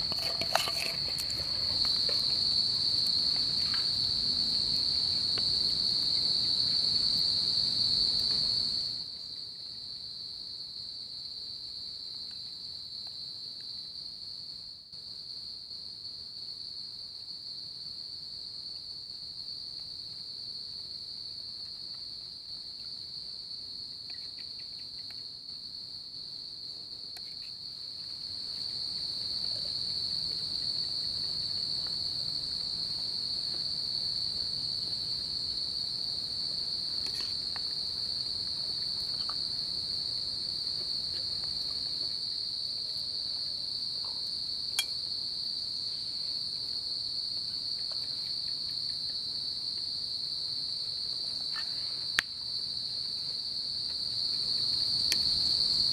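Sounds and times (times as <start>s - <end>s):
high-pitched insect chorus: 0.0s - 55.9s.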